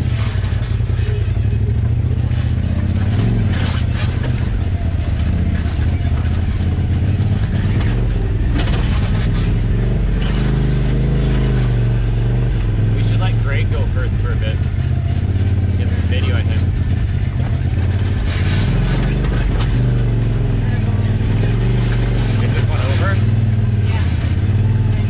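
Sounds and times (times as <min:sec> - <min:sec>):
utility vehicle engine revving: 0:00.0 - 0:25.0
vehicle knocks over terrain: 0:07.2 - 0:09.5.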